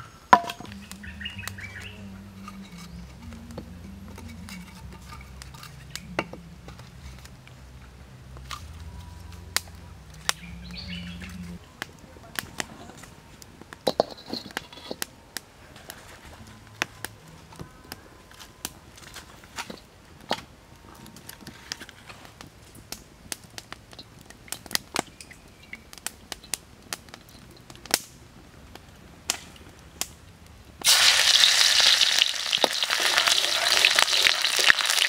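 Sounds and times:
birds chirping faintly: 0.0 - 6.4, 8.7 - 13.3, 23.9 - 26.6
low steady rumble: 0.0 - 12.3
firewood sticks knocking: 0.3 - 7.4, 9.4 - 15.1
sharp cracks of fire: 8.3 - 35.0.

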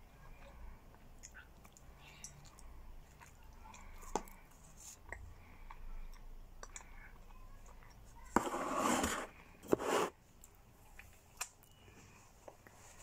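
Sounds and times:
chewing food: 0.2 - 8.3.

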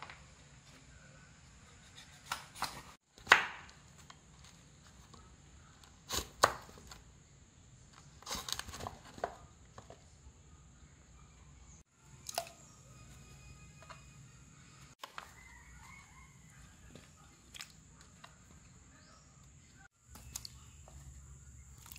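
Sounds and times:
knife chopping on wooden board: 6.1 - 6.7.

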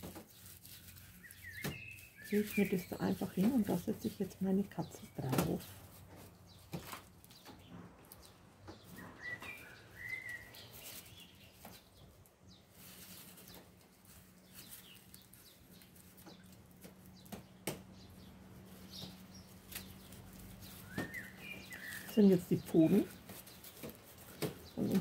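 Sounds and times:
aluminium foil crinkling: 0.0 - 25.0
small birds chirping: 0.0 - 25.0.

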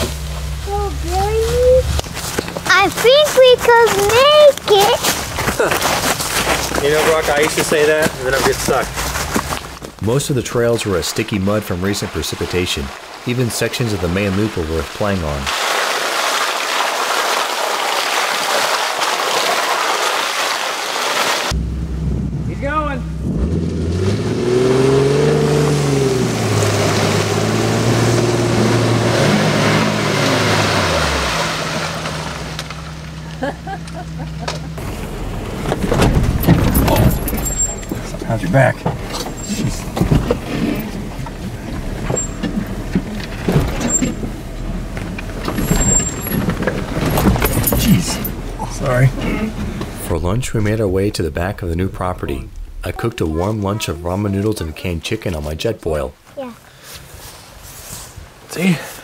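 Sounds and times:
low engine rumble: 0.0 - 12.5, 21.5 - 24.4, 25.8 - 56.1
thumps and rattles over rocks: 1.5 - 10.8, 34.3 - 51.6
mud spattering off spinning tire: 2.0 - 21.6, 23.2 - 53.7.

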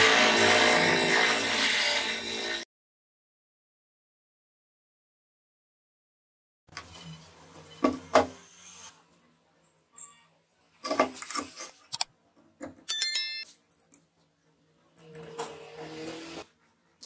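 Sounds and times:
bright metallic ring: 12.9 - 13.5.

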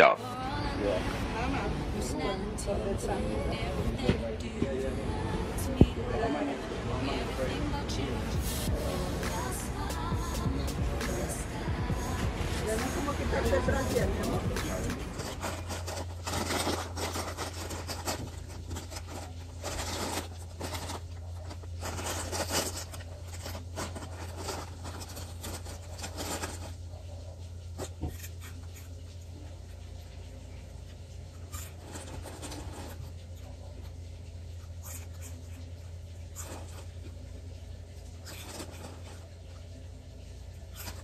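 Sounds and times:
steady low hum: 0.0 - 41.0
rubbing and scuffing: 8.3 - 26.8.

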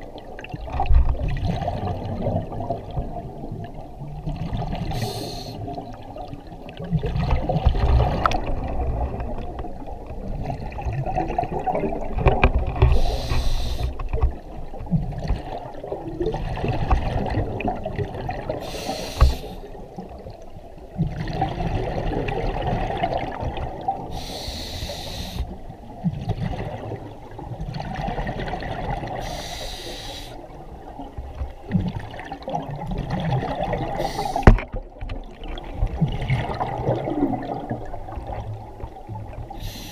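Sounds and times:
gurgling exhaled bubbles: 0.0 - 39.9
hissing regulator breath: 5.0 - 5.6, 12.9 - 14.0, 18.6 - 19.7, 24.1 - 25.6, 29.2 - 30.4, 34.0 - 34.5, 39.6 - 39.9.

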